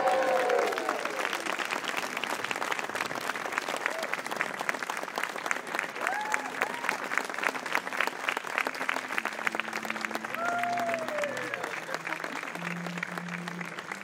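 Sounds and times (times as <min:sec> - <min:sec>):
voices cheering: 0:00.0 - 0:01.5, 0:06.0 - 0:07.1, 0:10.1 - 0:12.4
crowd applauding: 0:00.0 - 0:14.0.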